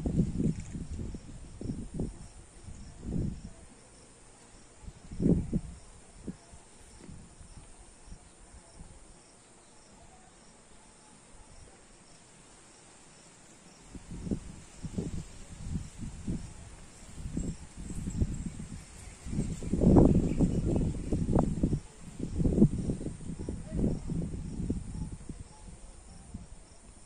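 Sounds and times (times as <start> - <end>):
low rumble on microphone: 0.0 - 3.8, 4.8 - 9.0, 13.9 - 27.0
insects chirping: 0.0 - 27.0.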